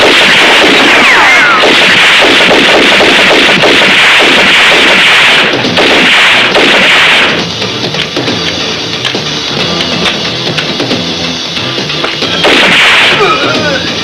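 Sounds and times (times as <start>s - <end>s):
rapid gunfire: 0.0s - 7.5s, 12.4s - 13.6s.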